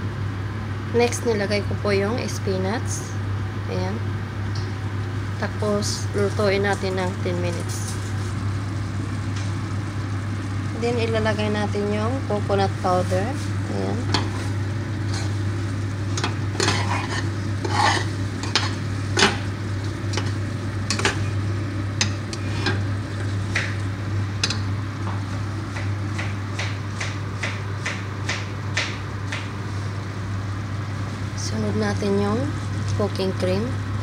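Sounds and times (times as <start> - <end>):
steady low hum: 0.0 - 34.0
spoon clinking and scraping pot: 16.2 - 19.4.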